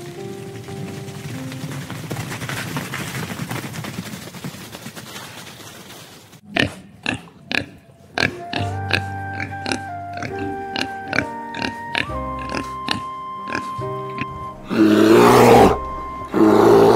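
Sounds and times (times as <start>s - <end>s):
outdoor background noise: 0.0s - 10.6s
boar grunting: 6.4s - 16.9s.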